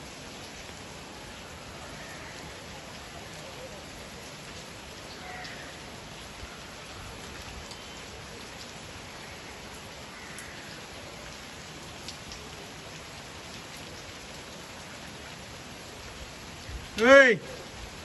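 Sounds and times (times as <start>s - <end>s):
heavy rain hissing: 0.0s - 18.0s
raindrop ticks: 4.2s - 6.6s, 7.2s - 15.4s.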